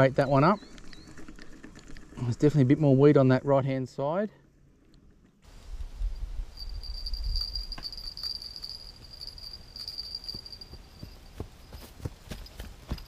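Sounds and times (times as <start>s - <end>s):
insect trilling: 6.5s - 11.4s.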